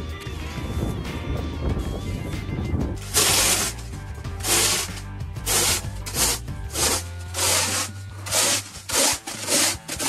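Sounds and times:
background music: 0.0s - 10.0s
snow shovel scraping ice: 3.0s - 10.0s.

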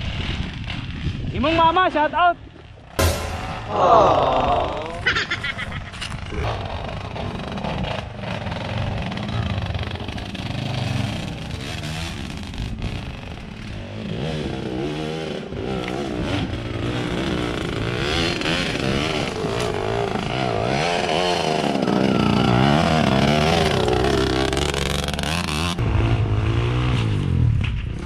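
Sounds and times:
dirt bike engine revving: 6.2s - 28.0s.

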